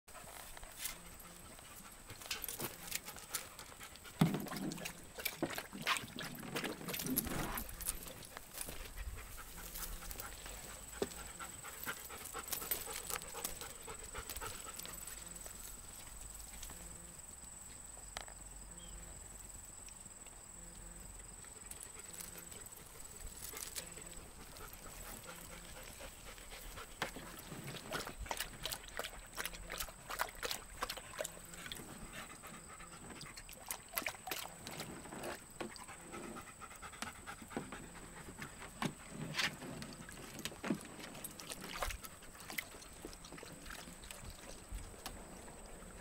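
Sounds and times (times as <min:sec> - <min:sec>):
dogs panting: 0:00.1 - 0:05.5, 0:06.3 - 0:16.2, 0:21.4 - 0:33.9, 0:35.6 - 0:40.4.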